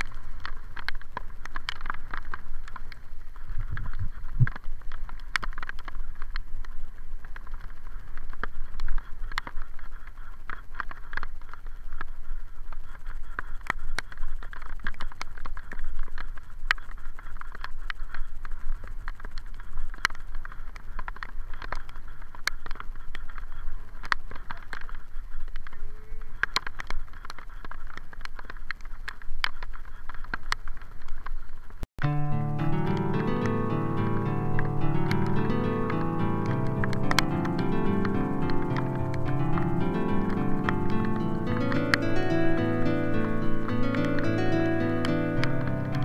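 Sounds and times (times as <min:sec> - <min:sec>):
bicycle on wet road rumble: 0:00.0 - 0:25.7
sharp taps and clicks: 0:32.0 - 0:46.0.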